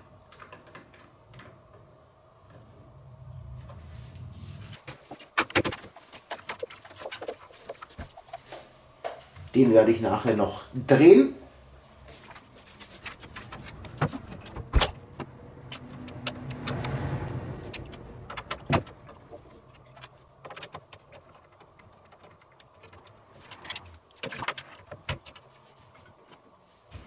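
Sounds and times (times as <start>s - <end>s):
computer parts clicking and knocking: 4.9s - 8.4s, 12.3s - 26.4s
scraping rustle: 11.8s - 14.7s.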